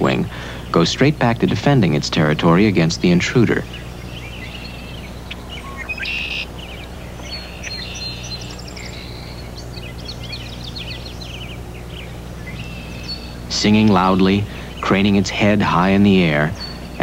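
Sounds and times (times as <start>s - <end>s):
blackbirds singing and calling: 0.0s - 17.0s
steady low hum: 0.0s - 17.0s.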